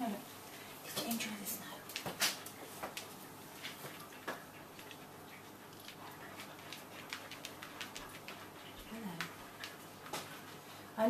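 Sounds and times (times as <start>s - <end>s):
pet claws clicking on vinyl floor: 1.9s - 10.6s.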